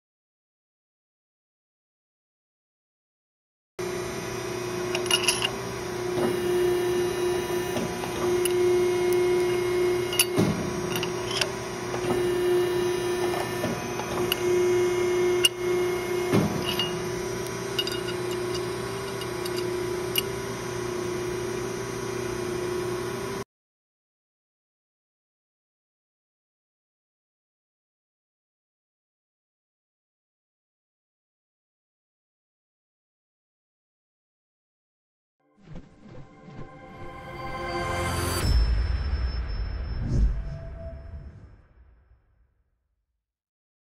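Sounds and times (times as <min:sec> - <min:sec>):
hydraulic pump humming: 0:03.8 - 0:23.4.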